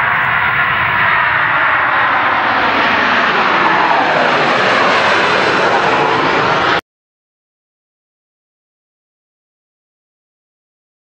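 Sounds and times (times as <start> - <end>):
jet airliner engines: 0.0 - 6.8.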